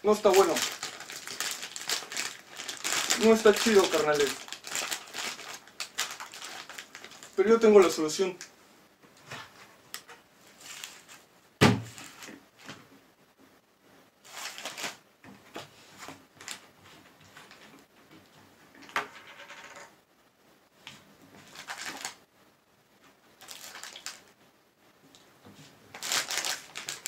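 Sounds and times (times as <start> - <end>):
snack bag rustling: 0.1 - 7.4, 14.2 - 15.0, 21.4 - 22.2, 23.4 - 24.3, 25.9 - 27.0
plastic jug thud on table: 11.6 - 12.0.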